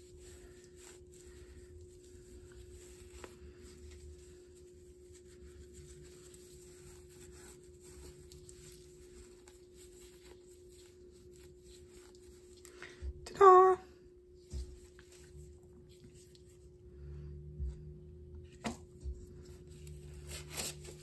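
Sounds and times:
light scratching and rubbing: 0.0 - 12.7
steady low hum: 0.0 - 21.0.

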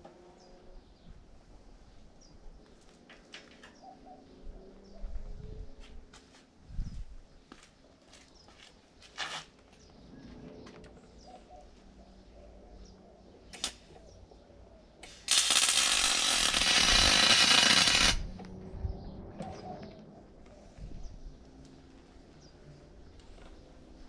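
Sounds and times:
welder welding: 13.6 - 13.9, 15.0 - 18.4.

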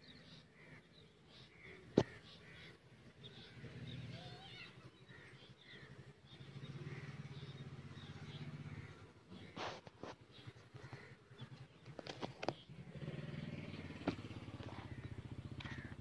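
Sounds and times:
birds calling: 0.0 - 16.0
crows cawing: 1.5 - 2.8, 5.1 - 5.9, 8.6 - 11.6, 14.0 - 16.0.

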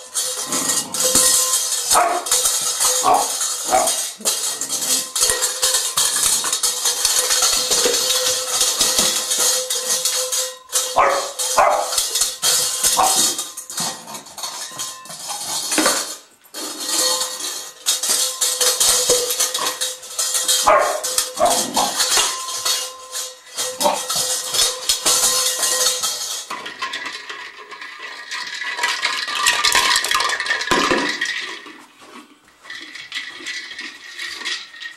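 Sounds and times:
dog bowl clattering: 0.0 - 34.9
dog barking: 1.9 - 2.3, 3.0 - 4.0, 11.0 - 12.0, 20.7 - 21.9.

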